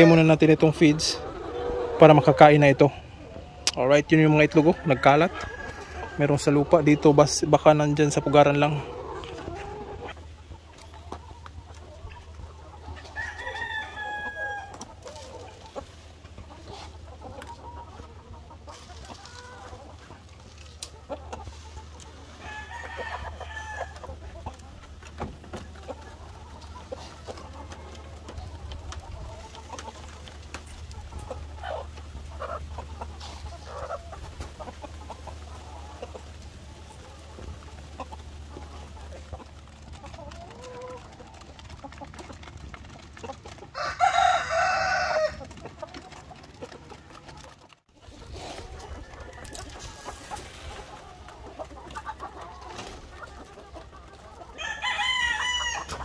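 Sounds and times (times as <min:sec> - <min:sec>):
hens clucking: 0:00.0 - 0:56.0
rooster crowing: 0:04.7 - 0:06.4, 0:13.1 - 0:14.8, 0:22.4 - 0:24.0, 0:43.8 - 0:45.4, 0:54.6 - 0:56.0.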